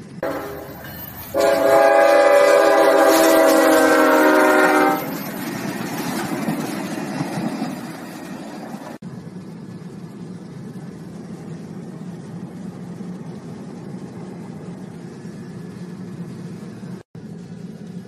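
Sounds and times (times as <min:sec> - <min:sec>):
car road and engine rumble: 0:09.0 - 0:18.0.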